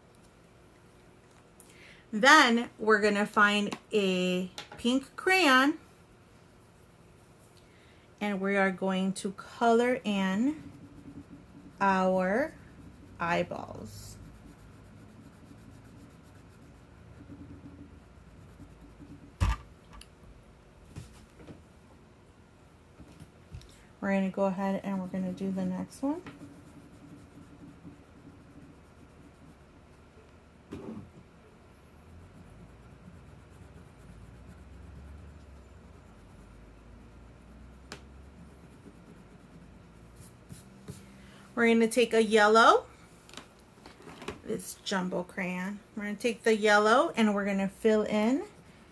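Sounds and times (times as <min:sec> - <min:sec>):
crayon rubbing on paper: 0:08.4 - 0:19.4, 0:24.2 - 0:30.0, 0:31.8 - 0:41.0.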